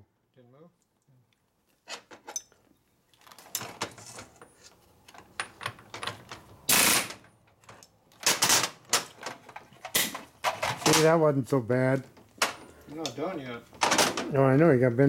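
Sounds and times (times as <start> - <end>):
air tool rattling in bursts: 6.7 - 7.2.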